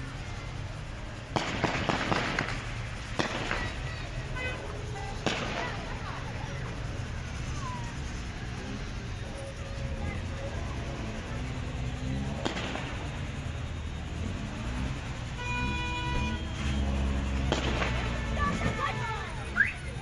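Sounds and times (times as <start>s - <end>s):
street background: 0.0s - 20.0s
sharp bangs: 1.2s - 6.2s, 11.5s - 13.9s, 16.1s - 19.0s.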